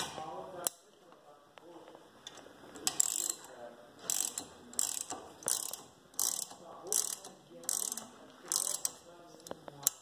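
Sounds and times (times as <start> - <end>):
ratchet pawl clicks: 2.9 - 9.0.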